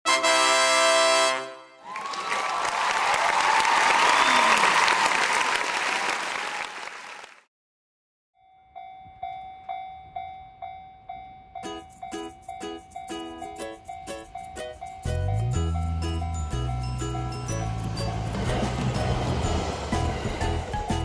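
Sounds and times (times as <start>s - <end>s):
music: 0.1s - 1.8s, 11.6s - 21.0s
applause and cheering: 1.8s - 7.5s
level crossing warning bell: 8.4s - 21.0s.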